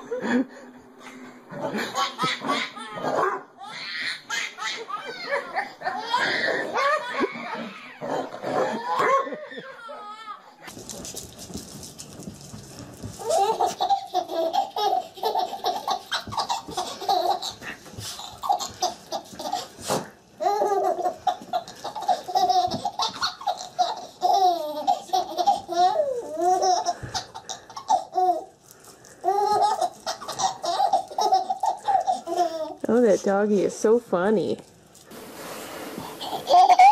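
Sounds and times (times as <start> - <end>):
baby laughing: 1.6 - 10.6, 13.2 - 28.6, 29.2 - 32.8, 36.0 - 36.9.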